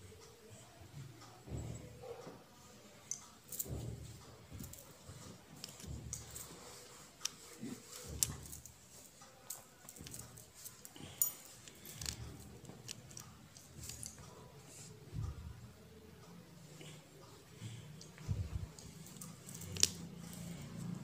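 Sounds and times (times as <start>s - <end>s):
soft handling thumps: 17.7s - 20.4s.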